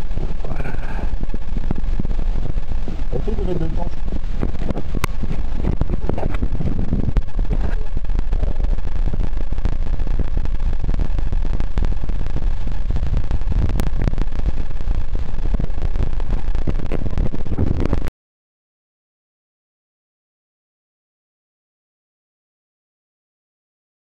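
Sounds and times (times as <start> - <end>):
fine crackles: 0.0 - 18.1
rumbling noise buffeting microphone: 0.0 - 18.1.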